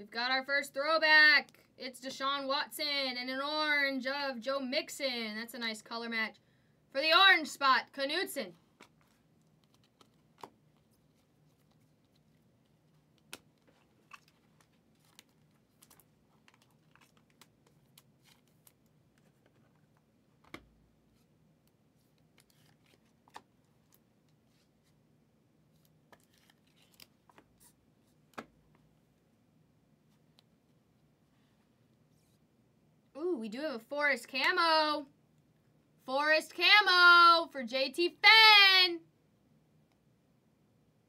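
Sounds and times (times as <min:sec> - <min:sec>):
cards being flipped and tapped: 0:08.7 - 0:20.8, 0:22.1 - 0:24.4, 0:25.8 - 0:27.7, 0:28.3 - 0:28.8.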